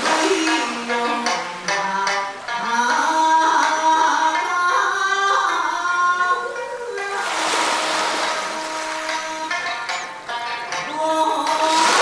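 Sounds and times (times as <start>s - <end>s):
background music melody: 0.0s - 12.0s.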